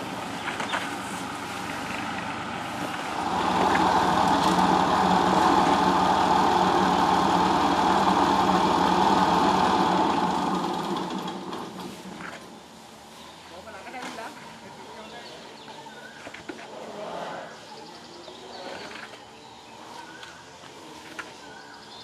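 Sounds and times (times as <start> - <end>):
tractor engine running: 0.0 - 12.6.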